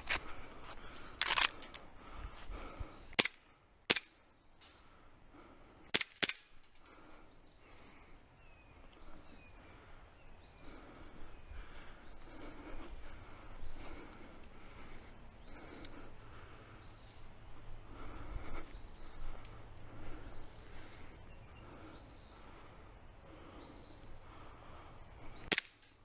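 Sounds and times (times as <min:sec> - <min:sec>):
bird calling: 0:06.9 - 0:25.6.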